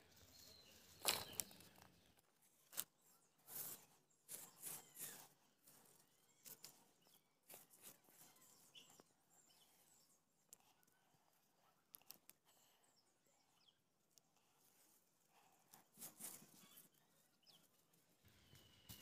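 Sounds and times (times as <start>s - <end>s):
soft scuffs of soil: 2.6s - 8.9s, 14.4s - 17.0s.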